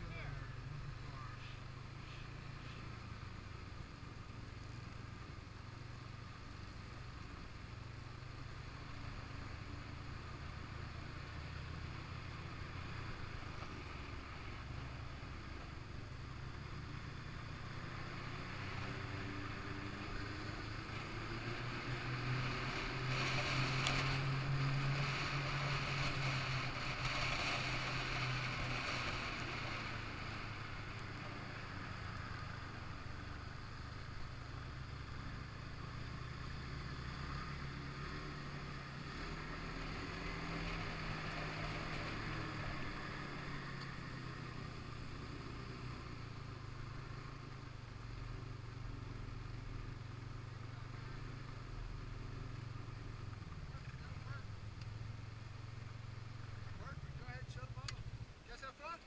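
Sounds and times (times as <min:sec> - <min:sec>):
track and wind hiss: 0:00.0 - 0:59.0
snowmobile engine running: 0:17.8 - 0:33.1, 0:38.1 - 0:46.0.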